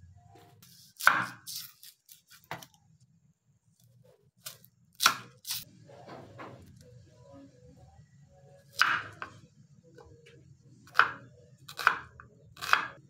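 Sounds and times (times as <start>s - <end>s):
knife slicing onion on wooden board: 0.6s - 2.7s, 4.4s - 6.7s, 8.7s - 9.4s, 10.8s - 13.0s.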